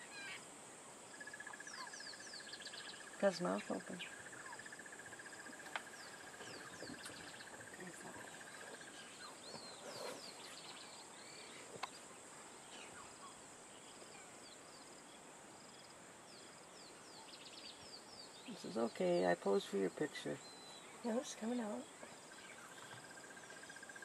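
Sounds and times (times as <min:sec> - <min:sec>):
high insect drone: 0:00.0 - 0:24.0
bird chirps: 0:01.1 - 0:12.0, 0:16.3 - 0:24.0.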